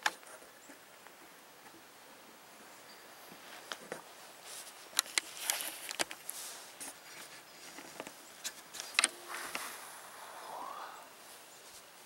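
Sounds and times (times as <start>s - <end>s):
clothing and gear rustling: 3.3s - 12.0s.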